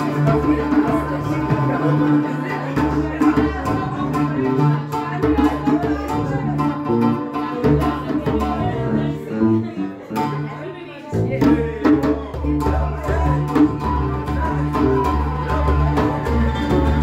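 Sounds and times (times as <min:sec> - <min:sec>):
bass guitar line: 0:00.0 - 0:17.0
plucked oud melody: 0:00.0 - 0:17.0
hand drum strokes: 0:11.2 - 0:17.0.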